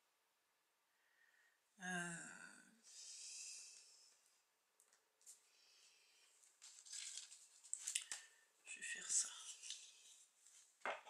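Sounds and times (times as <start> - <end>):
woman humming: 1.8 - 2.7.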